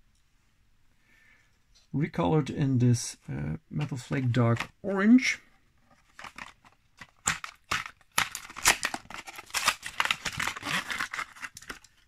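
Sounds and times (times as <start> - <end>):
plastic blister pack crinkling: 5.9 - 12.0.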